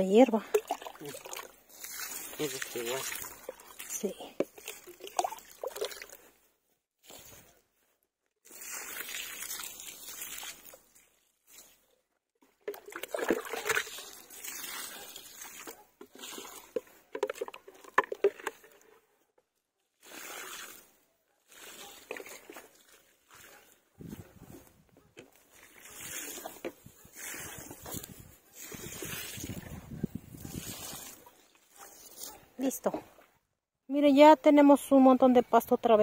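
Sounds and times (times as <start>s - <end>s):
water sloshing in a bucket: 0.0s - 7.4s, 8.4s - 19.2s, 19.9s - 33.3s
water pouring onto soil: 0.3s - 6.4s, 8.4s - 11.8s, 12.6s - 18.7s, 20.0s - 23.5s, 25.4s - 32.3s.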